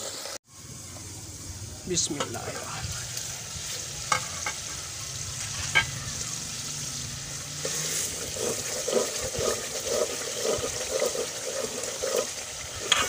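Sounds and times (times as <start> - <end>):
gravy sizzling in a pot: 0.0 - 13.0
metal ladle scraping pot: 5.4 - 6.1, 7.6 - 13.0.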